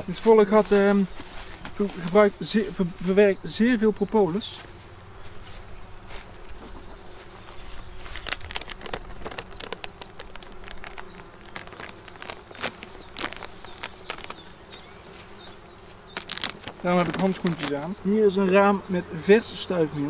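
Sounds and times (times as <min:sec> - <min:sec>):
plastic foil crackling as peeled: 0:07.8 - 0:15.0, 0:16.2 - 0:17.9.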